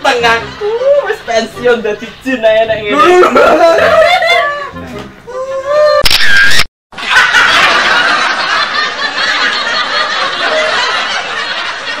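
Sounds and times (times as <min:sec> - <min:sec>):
crowd laughing: 0:03.2 - 0:04.9, 0:07.0 - 0:12.0.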